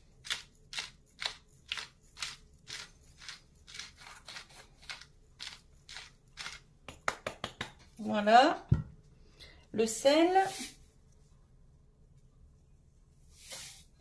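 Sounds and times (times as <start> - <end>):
pepper mill grinding: 0.0 - 6.8.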